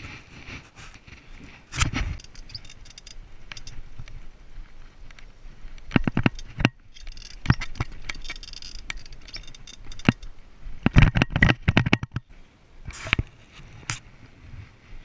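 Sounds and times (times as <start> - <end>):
bike frame and chain clattering: 1.7 - 3.9, 5.9 - 11.8.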